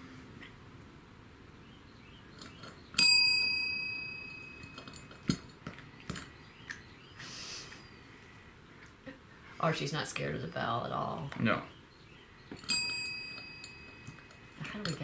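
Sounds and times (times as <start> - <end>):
service bell ding: 3.0 - 5.0, 12.7 - 14.4.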